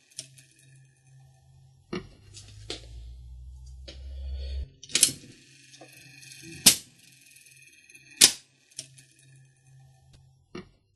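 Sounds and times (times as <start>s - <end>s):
low mechanical rumble: 0.3s - 8.2s.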